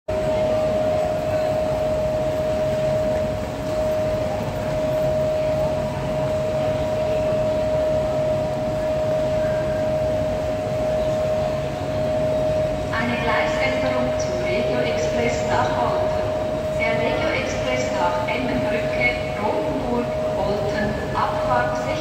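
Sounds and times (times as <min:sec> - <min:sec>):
electric locomotive whine: 0:00.1 - 0:22.0
low hum: 0:00.1 - 0:22.0.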